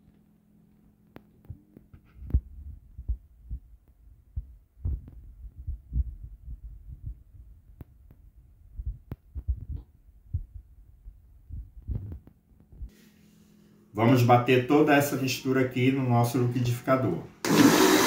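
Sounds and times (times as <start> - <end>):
soft low thumps and knocks: 2.2 - 12.9.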